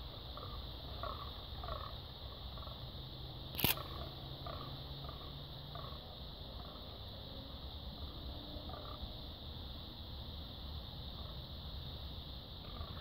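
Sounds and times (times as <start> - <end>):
sharp click: 3.5 - 3.9.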